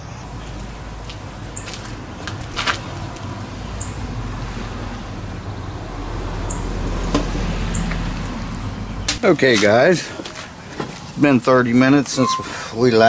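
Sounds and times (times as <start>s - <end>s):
high-pitched chirps: 12.2s - 12.6s.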